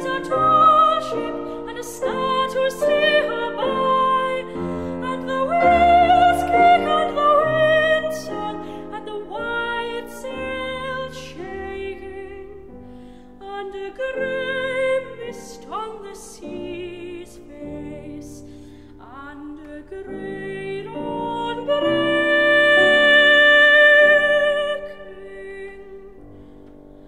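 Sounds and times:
slow song with singer: 0.0 - 27.0.

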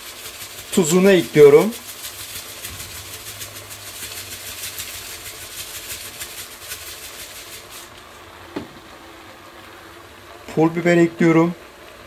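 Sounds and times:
pot simmering with crackling hiss: 0.0 - 12.0.

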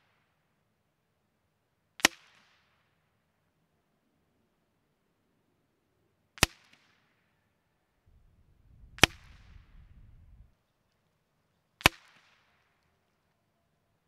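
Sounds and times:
suppressed rifle shots: 8.1 - 10.5.

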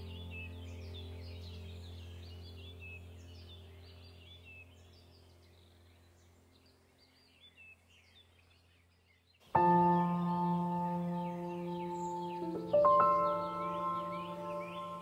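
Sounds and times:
low steady drone: 0.0 - 6.4, 9.6 - 15.0
birds chirping and whistling: 0.1 - 15.0.

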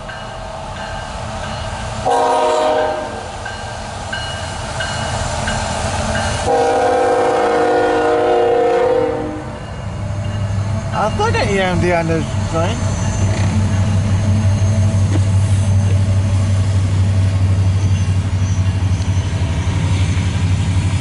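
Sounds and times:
train rumble: 0.0 - 21.0
locomotive air horn blasts: 2.0 - 3.3, 6.5 - 9.6.

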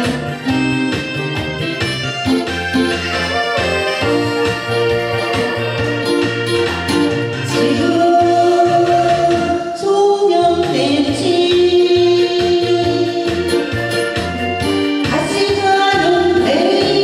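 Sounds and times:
pulsing bass line: 0.0 - 9.6
keyboard accompaniment: 0.0 - 17.0
woman singing into microphone: 7.4 - 14.0, 15.0 - 17.0.

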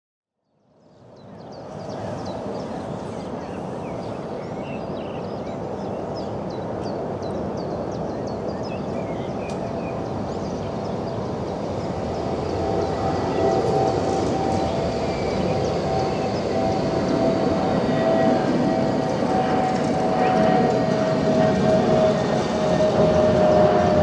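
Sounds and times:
birds chirping: 0.8 - 24.0
tram rumble: 1.6 - 24.0
steady whine: 11.2 - 24.0.

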